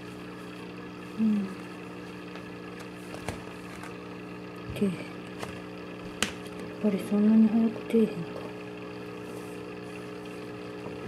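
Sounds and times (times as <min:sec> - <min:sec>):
low electrical hum: 0:00.0 - 0:11.0
brief vocal sounds: 0:01.2 - 0:01.6.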